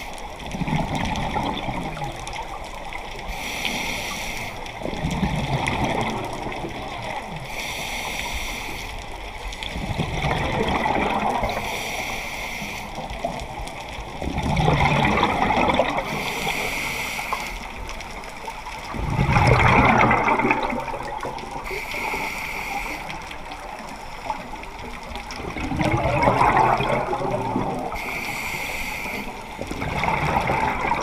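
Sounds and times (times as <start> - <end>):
bubbling gurgling exhale: 0.4 - 2.6, 4.7 - 7.4, 9.6 - 11.8, 12.9 - 16.9, 18.8 - 22.3, 23.0 - 28.3, 29.3 - 31.0
regulator inhale hissing: 3.3 - 4.8, 7.4 - 9.1, 11.5 - 13.1, 16.0 - 17.8, 21.6 - 23.5, 27.9 - 29.6.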